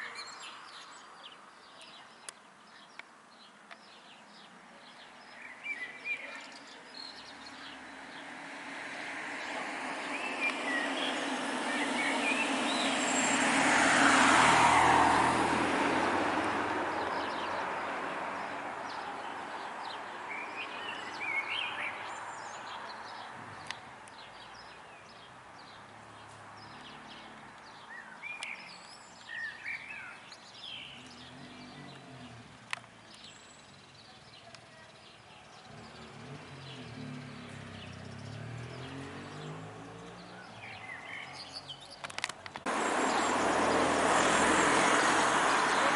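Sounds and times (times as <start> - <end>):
small birds chirping: 0.0 - 13.5, 15.9 - 45.9
car passing: 6.9 - 28.8, 29.6 - 33.4, 35.6 - 41.8, 42.6 - 45.9.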